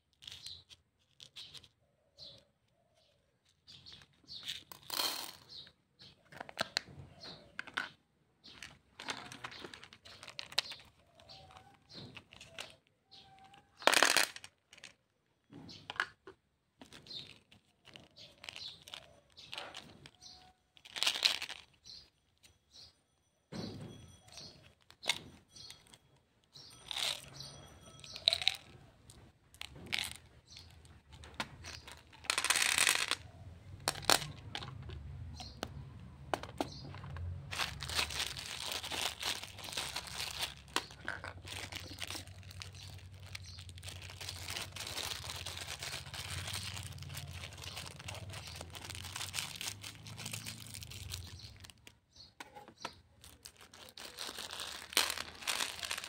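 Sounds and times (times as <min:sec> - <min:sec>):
packaging rustle: 0:09.0 - 0:14.3, 0:16.8 - 0:22.2, 0:36.4 - 0:52.0, 0:52.7 - 0:56.0
plastic bag crinkling: 0:09.0 - 0:14.9, 0:16.8 - 0:22.4, 0:24.2 - 0:56.0.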